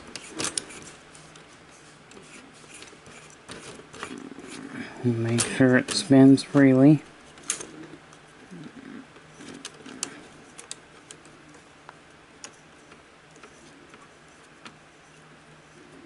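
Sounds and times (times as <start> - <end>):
faint hum: 0.0 - 16.0.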